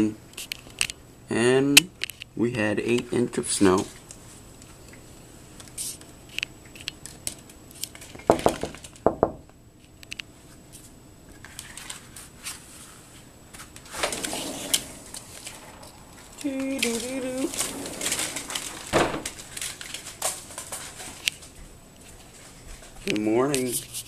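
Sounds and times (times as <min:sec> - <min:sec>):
loud knocks: 0:08.3 - 0:09.4.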